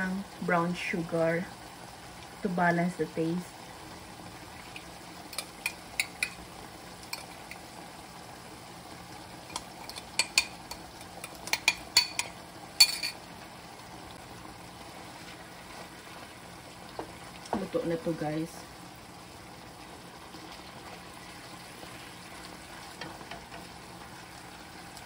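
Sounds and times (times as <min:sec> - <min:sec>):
sauce bubbling in a pan: 0:00.0 - 0:25.0
sugar ticking into pan: 0:04.6 - 0:06.4, 0:09.4 - 0:13.2.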